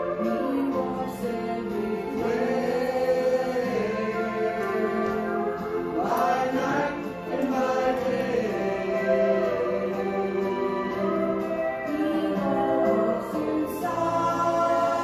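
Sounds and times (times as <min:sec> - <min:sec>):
group singing gospel in harmony: 0:00.0 - 0:15.0
woman singing into microphone: 0:11.9 - 0:15.0.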